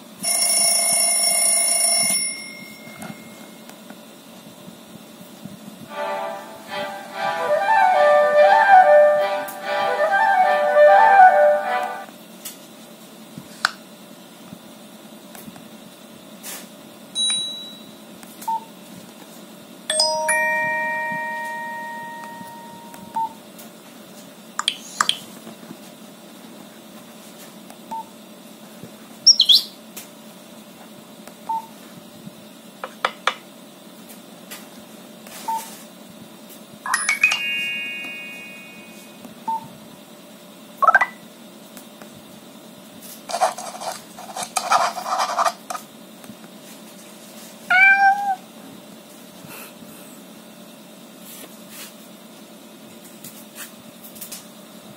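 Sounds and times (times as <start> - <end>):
phone alert chimes and jingles: 19.9 - 23.2, 36.9 - 39.0.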